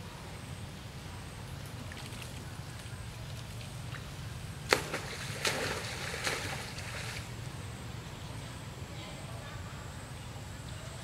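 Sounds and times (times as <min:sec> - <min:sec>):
monkey splashing in water: 0:01.6 - 0:07.4
sharp smack on water: 0:04.7 - 0:07.3.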